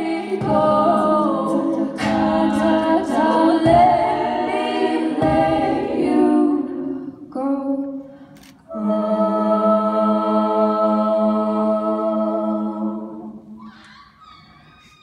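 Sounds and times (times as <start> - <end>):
women singing a cappella: 0.0 - 13.6
vocal percussion bass thumps: 0.3 - 1.2, 1.9 - 4.3, 5.2 - 5.8.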